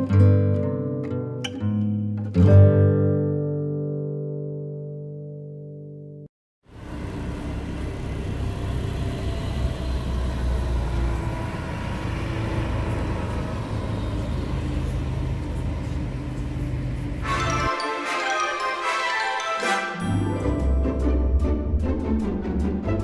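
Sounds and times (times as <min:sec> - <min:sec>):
tourist train engine rumble: 0:06.7 - 0:17.6
street traffic: 0:06.7 - 0:18.4.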